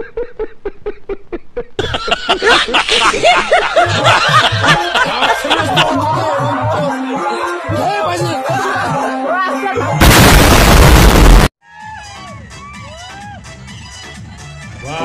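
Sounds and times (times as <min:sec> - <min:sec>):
man laughing: 0:00.0 - 0:06.9.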